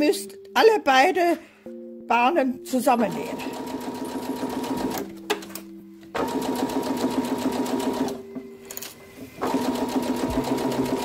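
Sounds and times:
electric sewing machine stitching: 0:03.3 - 0:05.0, 0:06.2 - 0:08.2, 0:09.4 - 0:11.0.

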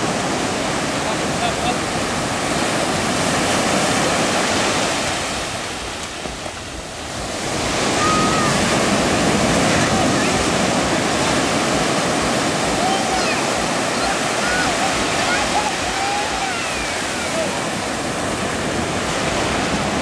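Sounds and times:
ocean surf breaking: 0:00.0 - 0:20.0.

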